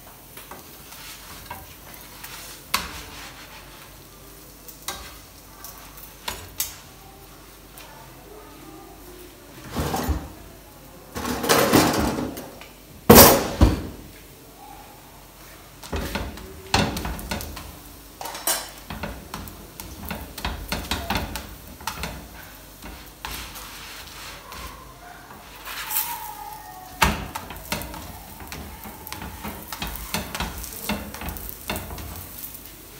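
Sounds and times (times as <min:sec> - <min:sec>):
spatula scraping on a griddle: 0:00.3 - 0:04.1, 0:04.7 - 0:06.5, 0:15.8 - 0:32.9.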